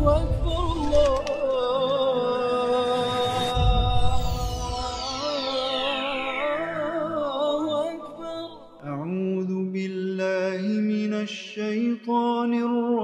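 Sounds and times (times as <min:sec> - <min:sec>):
falling sweep effect: 0:03.4 - 0:08.0.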